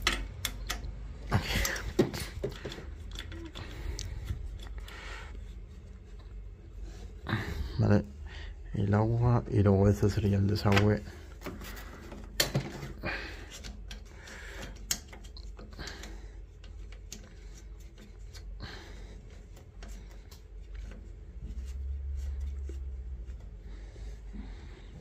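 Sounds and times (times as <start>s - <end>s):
metallic clicks of hose fitting: 0.0s - 1.0s, 2.5s - 5.0s, 13.5s - 18.5s.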